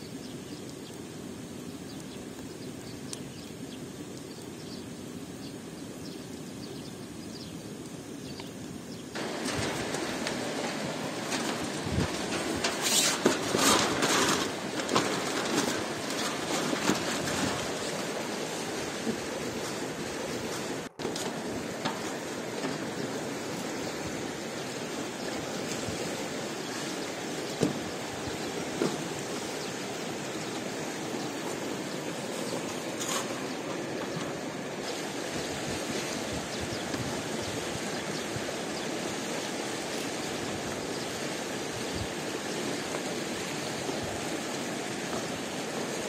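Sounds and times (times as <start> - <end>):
steady rushing hiss: 0.0 - 46.0
aluminium foil crinkling: 9.2 - 18.3.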